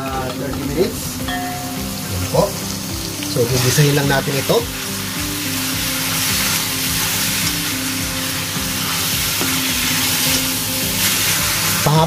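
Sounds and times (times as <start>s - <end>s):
pork sizzling in hot oil: 0.0s - 12.0s
spatula stirring in pan: 4.6s - 12.0s.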